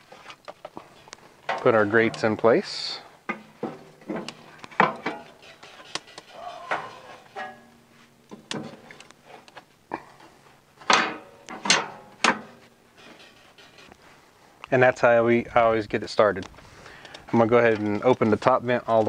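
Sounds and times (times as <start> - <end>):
metal grates clanking and scraping: 0.8 - 9.0, 10.8 - 14.0.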